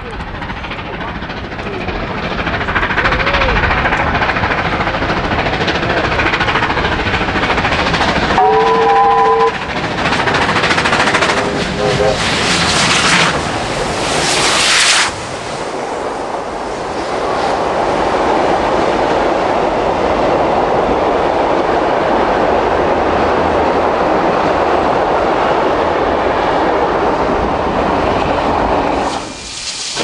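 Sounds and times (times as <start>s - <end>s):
steam locomotive exhaust hissing: 0.0s - 15.7s, 28.4s - 30.0s
train carriages rolling past: 0.0s - 30.0s.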